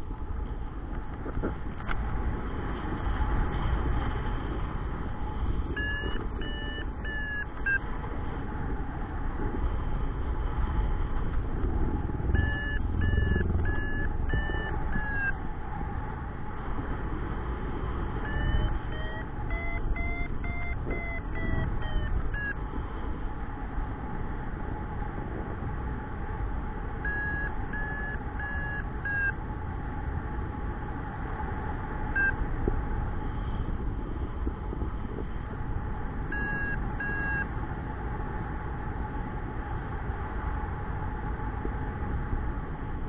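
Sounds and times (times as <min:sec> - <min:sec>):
wind rushing on microphone: 0:00.0 - 0:43.0
variometer beeping: 0:05.6 - 0:07.9, 0:12.2 - 0:15.5, 0:18.1 - 0:22.6, 0:27.0 - 0:29.4, 0:32.1 - 0:32.4, 0:36.2 - 0:37.5.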